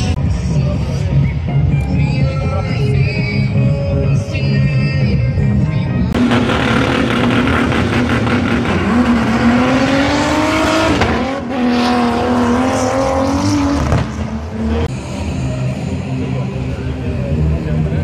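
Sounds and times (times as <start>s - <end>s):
car engine revving: 6.1s - 18.0s.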